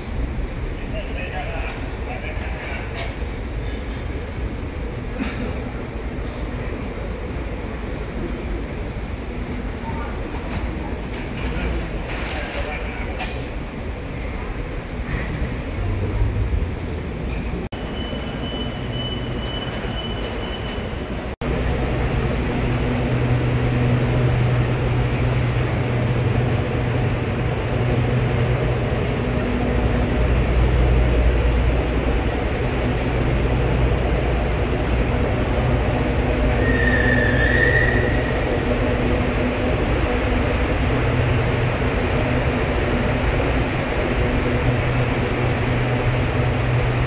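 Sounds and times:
electric train humming: 21.0 - 47.0.

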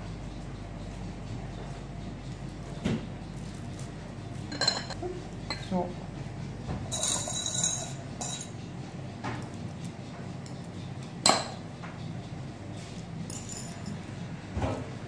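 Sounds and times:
glass clinking: 4.5 - 5.6, 6.9 - 8.6, 11.2 - 11.6, 13.3 - 14.1.

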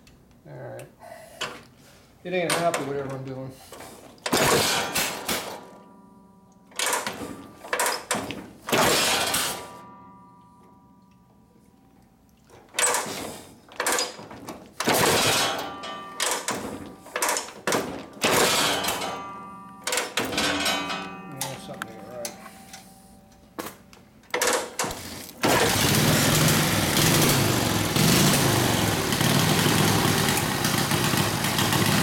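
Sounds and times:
motorcycle engine revving roughly: 25.4 - 32.0.

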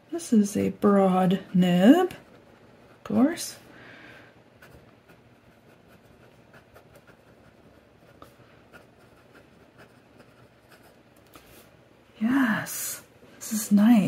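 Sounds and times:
fountain pen scratching on paper: 4.6 - 11.0.

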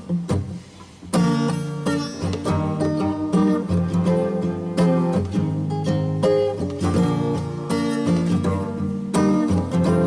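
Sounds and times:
strummed acoustic guitar: 0.0 - 10.0.

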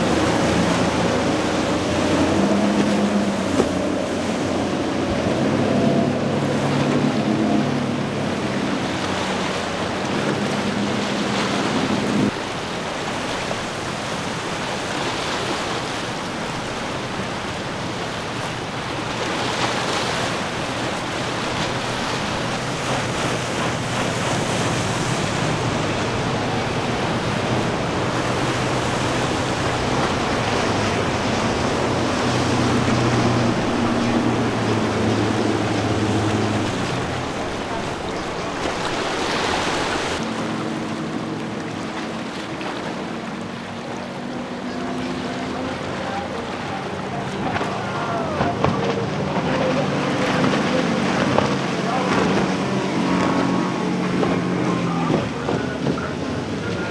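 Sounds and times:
breaking waves: 0.0 - 56.9
outboard motors running: 0.0 - 56.9.

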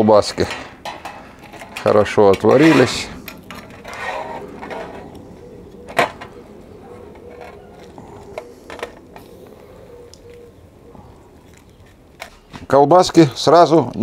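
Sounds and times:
cookware and utensils handled: 0.3 - 5.2.

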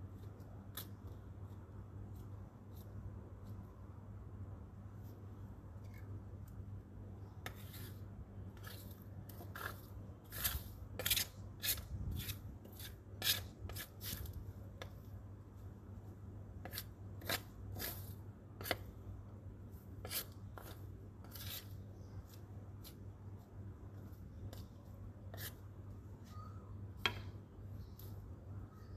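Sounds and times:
broom sweeping leaves on concrete: 8.6 - 14.3.

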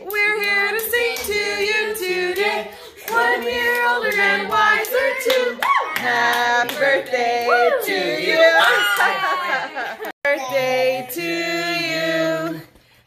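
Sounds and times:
singing voices: 0.0 - 13.0
hands clapping: 3.1 - 7.6, 8.9 - 9.2
high whoop: 5.6 - 6.0, 8.6 - 9.7.

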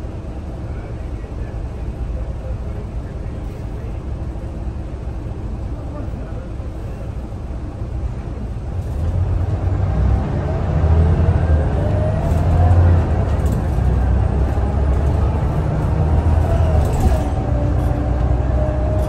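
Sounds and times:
bus engine accelerating: 0.0 - 19.0
rising engine whine: 8.8 - 19.0.

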